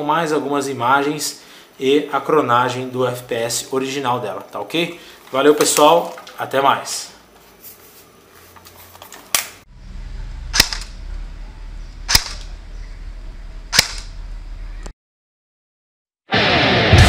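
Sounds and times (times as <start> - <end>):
airsoft rifle shots snapping: 10.5 - 10.9, 12.1 - 12.5, 13.7 - 14.1.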